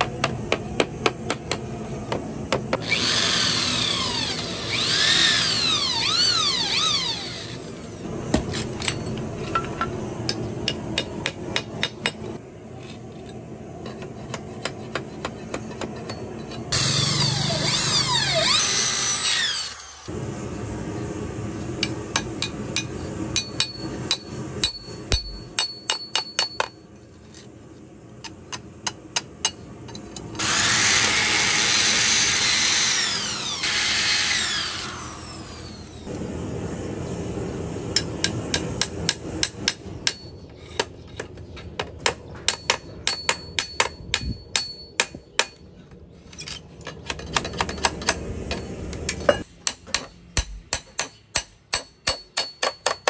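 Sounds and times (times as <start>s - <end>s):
electric drill boring into bamboo: 2.8s - 8.0s, 16.7s - 20.1s, 30.4s - 36.1s.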